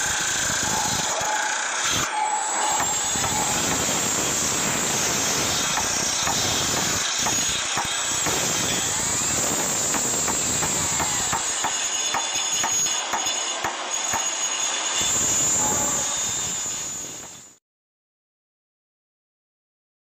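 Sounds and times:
loud steady hiss: 0:02.8 - 0:17.6
short squealing glides: 0:14.0 - 0:17.6.

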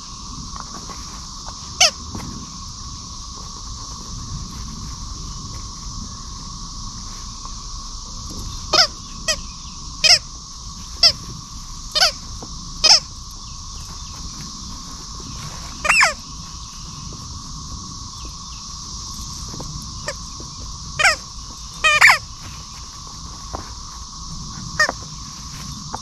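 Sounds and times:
rubber squeaky toy squeaking: 0:15.8 - 0:16.2.

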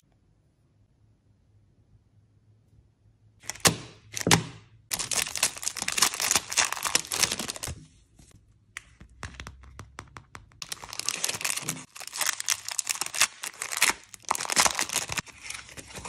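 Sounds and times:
plastic wrapping crinkling: 0:03.4 - 0:07.8, 0:10.6 - 0:16.0.

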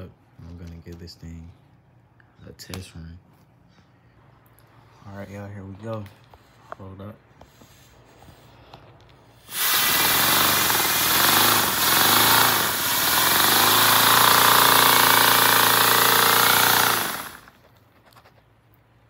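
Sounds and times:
hissing air rushing: 0:09.2 - 0:17.5.

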